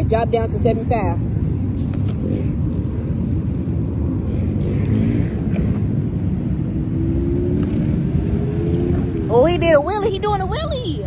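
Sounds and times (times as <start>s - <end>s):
street traffic: 0.0s - 11.0s
wind rumbling on microphone: 0.0s - 11.0s
motorbike engine revving: 1.3s - 9.7s.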